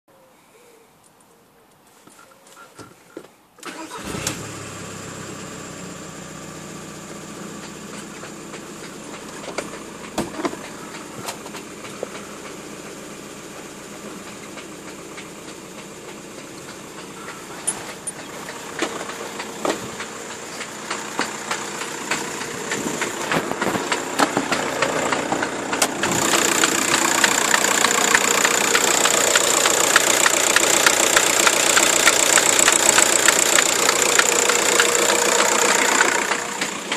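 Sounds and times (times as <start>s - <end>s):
diesel engine idling: 3.6s - 36.9s
gearbox cracks and knocks: 22.1s - 28.3s.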